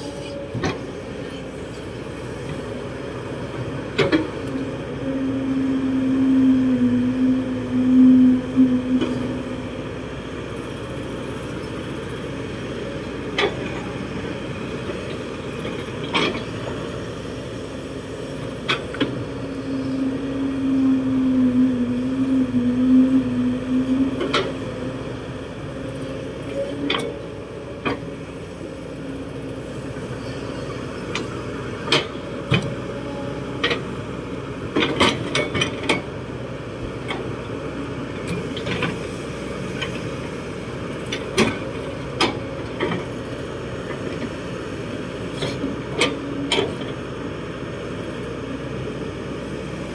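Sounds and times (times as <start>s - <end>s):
excavator diesel engine running: 0.0s - 49.9s
hydraulic hum: 3.5s - 12.0s, 13.1s - 33.9s.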